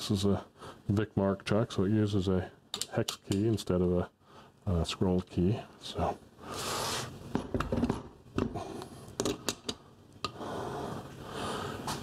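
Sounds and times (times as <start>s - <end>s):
objects being moved and set down: 7.3s - 8.6s.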